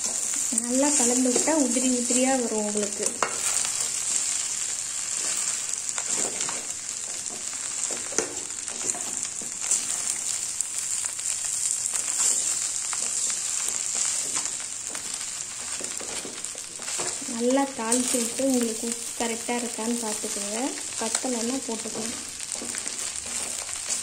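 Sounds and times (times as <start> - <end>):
frying sizzle: 0.0 - 24.0
spoon scraping pan: 3.0 - 4.4.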